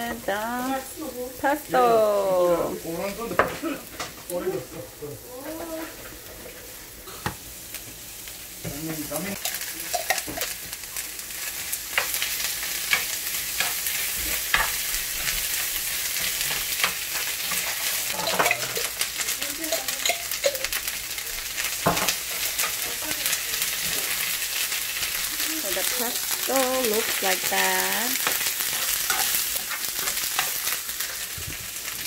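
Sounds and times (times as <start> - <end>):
food sizzling in a skillet: 0.0 - 32.0
fork scraping a pan: 28.2 - 31.4.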